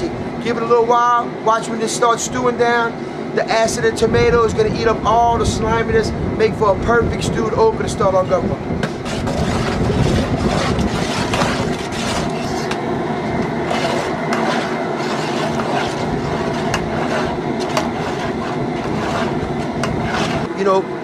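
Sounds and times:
gas burner rushing: 0:00.0 - 0:21.0
metal paddle scraping a pot: 0:08.8 - 0:12.8, 0:13.4 - 0:20.5.

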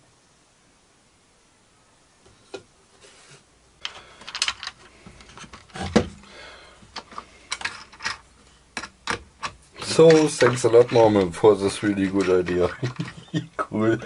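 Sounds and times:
wood and metal parts clicking: 0:03.8 - 0:13.7.

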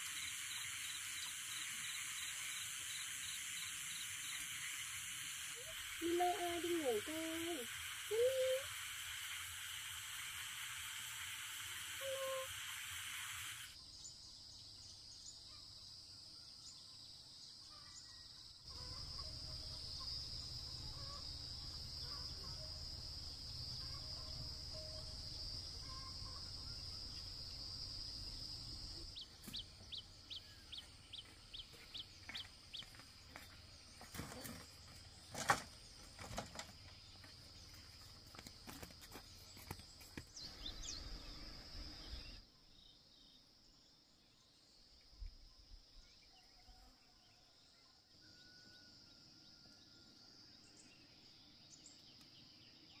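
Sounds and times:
high-pitched insect drone: 0:00.0 - 0:13.8.

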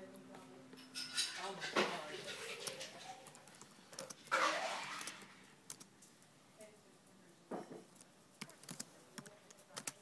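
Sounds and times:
laptop keystrokes: 0:05.7 - 0:05.9, 0:08.4 - 0:10.0.

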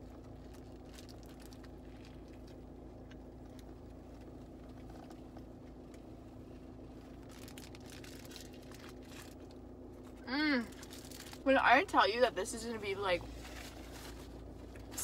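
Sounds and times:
faint car interior hum: 0:00.0 - 0:15.0
soft chewing: 0:00.1 - 0:10.2
paper wrapper rustling: 0:07.1 - 0:09.5.

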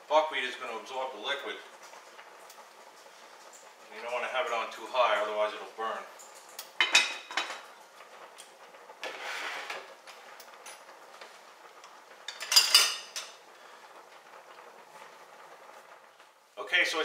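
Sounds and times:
metal utensils clattering: 0:12.3 - 0:13.4.

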